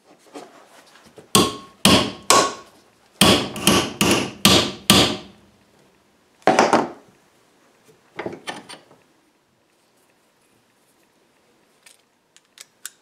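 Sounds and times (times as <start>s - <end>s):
hammer striking metal strip: 1.4s - 5.4s.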